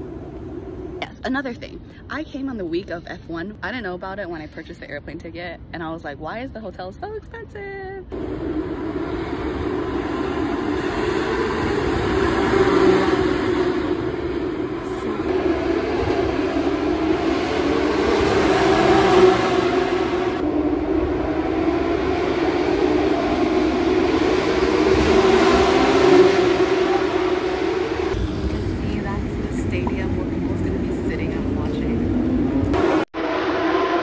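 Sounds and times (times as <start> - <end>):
racing car engines at high revs: 8.1 - 34.0.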